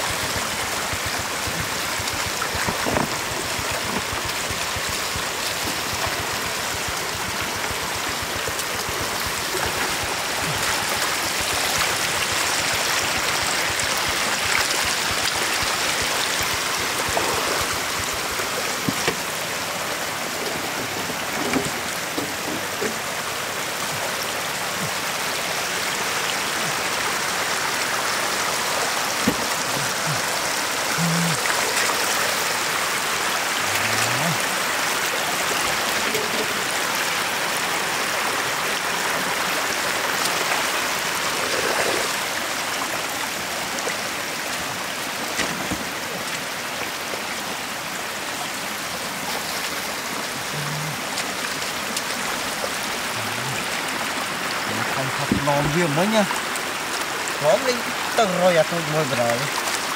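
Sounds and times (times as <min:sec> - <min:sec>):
floodwater running over mud: 0:00.0 - 0:59.9.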